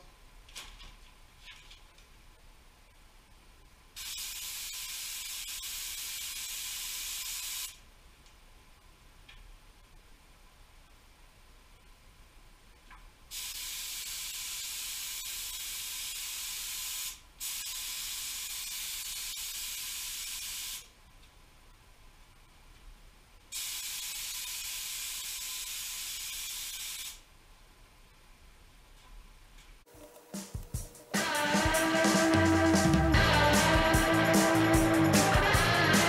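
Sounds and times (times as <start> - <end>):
paint spray gun hissing: 4.0 - 7.8, 13.3 - 20.9, 23.5 - 27.2.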